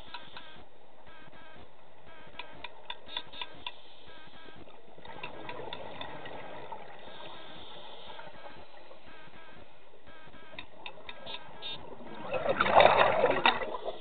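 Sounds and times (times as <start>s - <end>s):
sharp clicks: 0.1s - 6.2s
underwater exhaled bubbles rushing: 4.9s - 8.9s, 11.8s - 14.0s.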